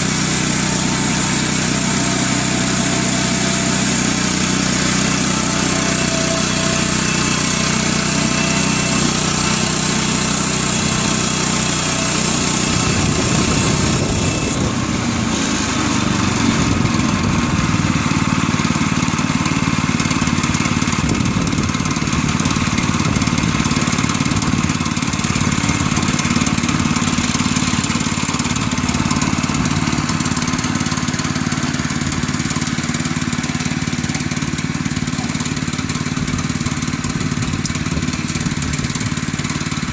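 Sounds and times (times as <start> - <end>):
sawmill high hiss: 0.0 - 20.9
small gas engine running: 0.0 - 39.9.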